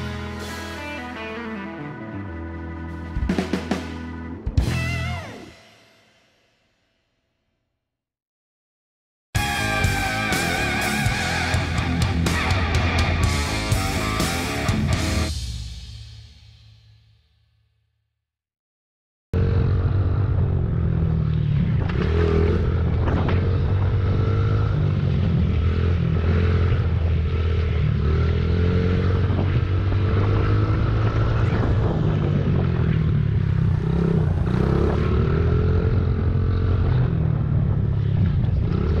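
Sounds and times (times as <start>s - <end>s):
dirt bike engine revving: 33.7s - 37.0s.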